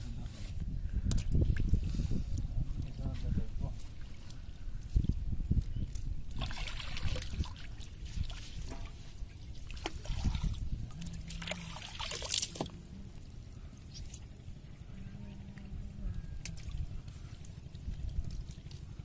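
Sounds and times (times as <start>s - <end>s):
water trickling and dripping off net: 5.0s - 13.2s
water splashing: 6.3s - 13.3s.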